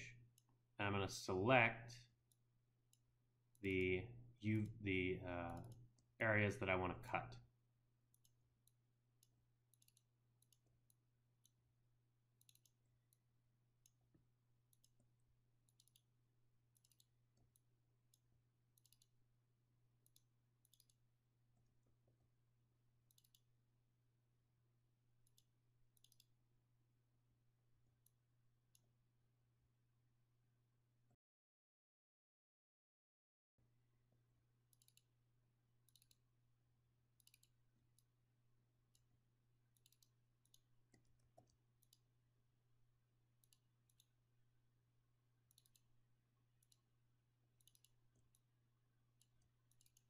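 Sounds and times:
computer mouse clicks: 5.5 - 6.1, 8.1 - 11.6, 12.4 - 13.2, 13.8 - 16.1, 16.7 - 19.2, 20.0 - 21.0, 23.0 - 23.5, 25.2 - 26.3, 34.7 - 35.1, 35.8 - 36.2, 37.2 - 38.1, 39.7 - 42.1, 43.4 - 44.2, 45.4 - 45.9, 46.6 - 46.9, 47.6 - 48.5, 49.1 - 50.0.

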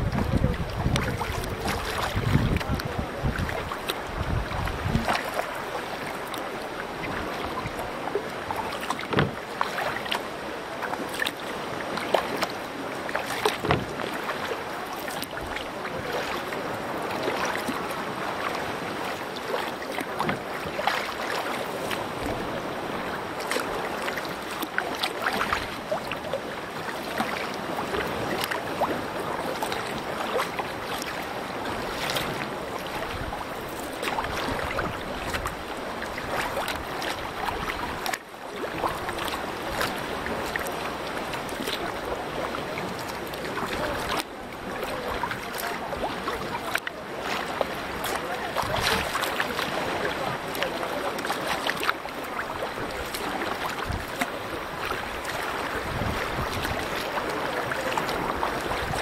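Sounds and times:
wind on microphone: 0.0 - 6.0, 52.8 - 59.0
water splashing around canoe: 0.0 - 59.0.

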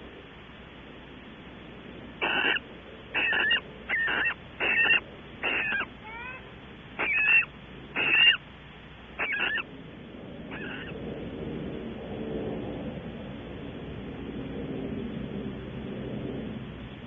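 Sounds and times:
owls giving harsh calls: 2.2 - 8.4, 9.2 - 9.7, 10.5 - 11.0
rising chirps: 3.2 - 8.4.

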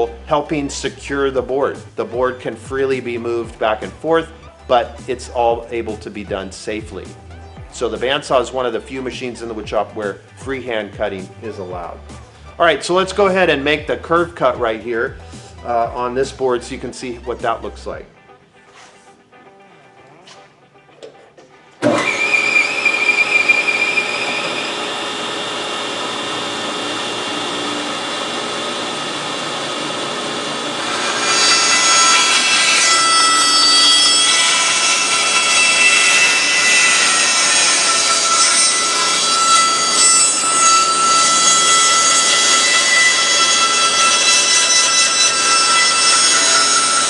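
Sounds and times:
bandsaw blade cutting board: 21.8 - 47.0
bandsaw whining: 21.8 - 47.0.

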